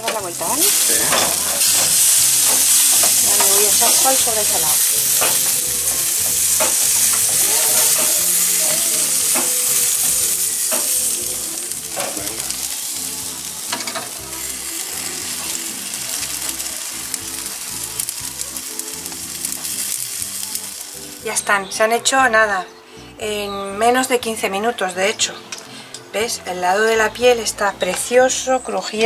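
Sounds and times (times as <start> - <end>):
meat sizzling on a grill: 0.0 - 22.1.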